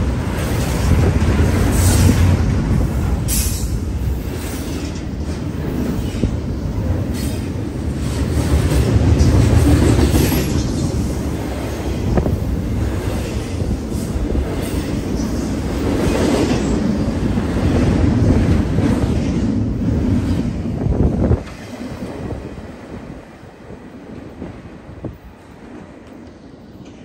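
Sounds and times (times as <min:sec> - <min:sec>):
sharp clacks of train wheels: 0:00.0 - 0:22.2
freight train wheels rumbling: 0:00.0 - 0:27.0.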